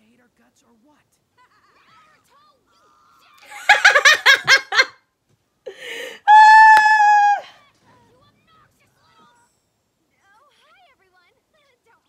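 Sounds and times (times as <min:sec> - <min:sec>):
woman laughing: 0:03.4 - 0:04.9, 0:05.7 - 0:07.5.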